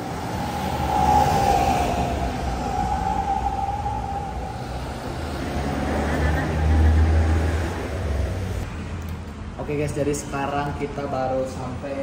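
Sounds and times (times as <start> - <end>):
long wavering high tone: 0.0 - 7.3
road traffic rumbling: 0.0 - 12.0.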